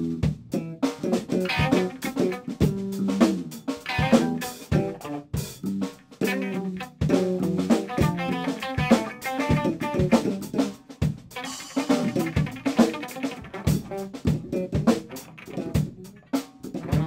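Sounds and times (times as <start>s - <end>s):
drum kit playing: 0.0s - 17.0s
guitar: 0.0s - 17.0s.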